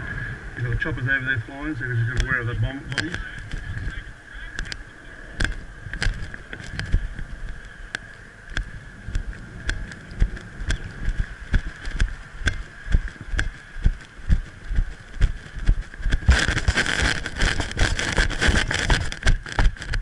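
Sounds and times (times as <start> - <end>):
steady high whine: 0.0 - 20.0
boot footsteps on road: 5.4 - 20.0.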